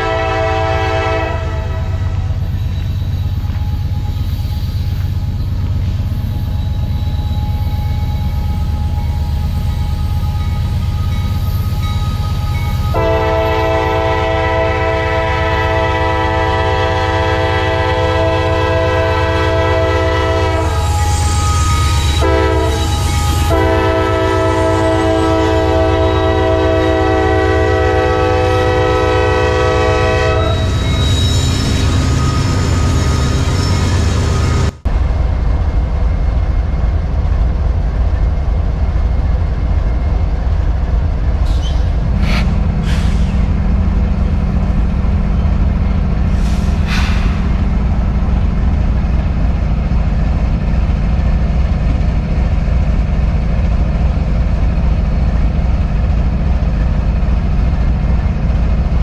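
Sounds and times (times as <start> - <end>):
train air horn chord: 0.0 - 2.2, 12.9 - 30.8
diesel locomotive engine rumbling: 0.0 - 59.0.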